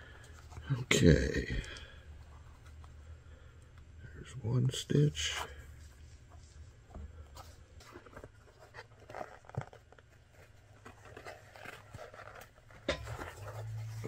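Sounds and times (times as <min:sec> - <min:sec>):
needle and thread through leather: 0:07.9 - 0:14.0.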